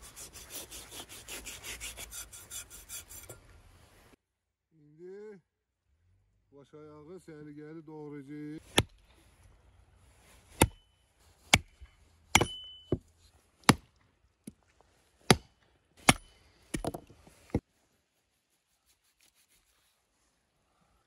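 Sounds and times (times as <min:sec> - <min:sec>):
hatchet chopping on wooden block: 0:10.6 - 0:10.8, 0:11.5 - 0:13.0, 0:15.3 - 0:17.1.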